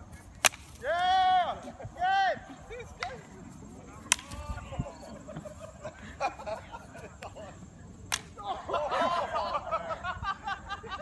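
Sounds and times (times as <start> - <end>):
sharp crack: 0.2 - 1.1, 2.9 - 4.7, 8.0 - 8.4
people shouting in the distance: 0.8 - 2.7.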